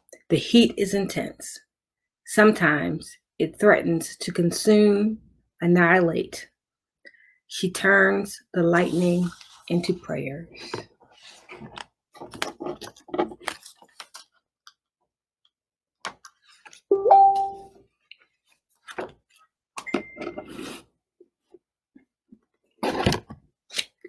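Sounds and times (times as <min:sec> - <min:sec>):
clicks and rustles of handling: 0:10.7 - 0:14.8
two-tone notification chime: 0:16.9 - 0:17.7.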